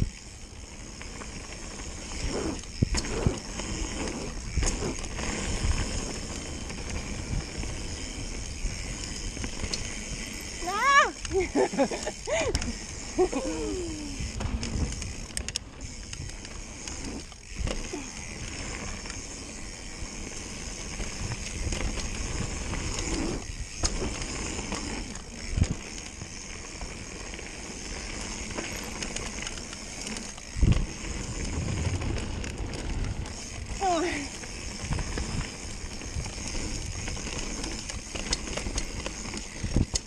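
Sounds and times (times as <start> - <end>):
tyre and wind rush: 30.5 - 37.3.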